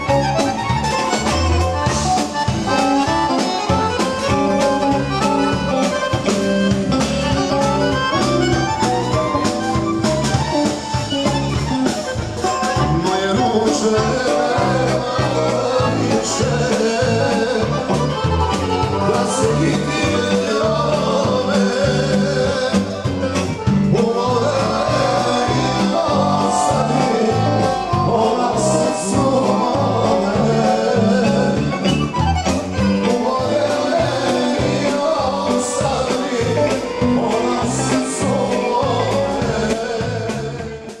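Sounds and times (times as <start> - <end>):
bass walking line: 0.0 - 40.8
drums: 0.0 - 41.0
electric guitars: 0.0 - 41.0
person singing: 12.5 - 32.0, 33.0 - 41.0.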